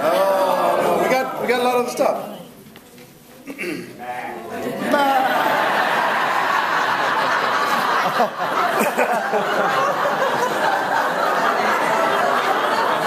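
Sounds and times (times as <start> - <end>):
crowd chatter: 0.0 - 13.0
people laughing: 4.5 - 13.0.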